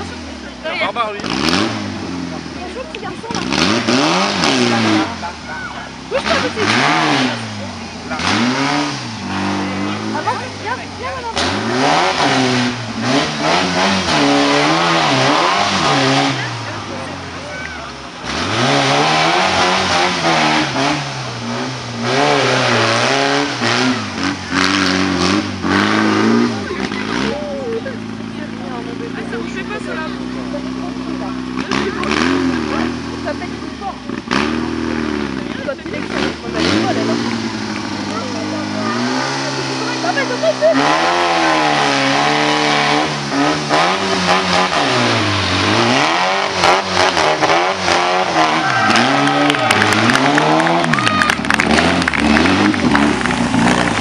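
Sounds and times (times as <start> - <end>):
buggy engine revving hard: 0.0 - 54.0.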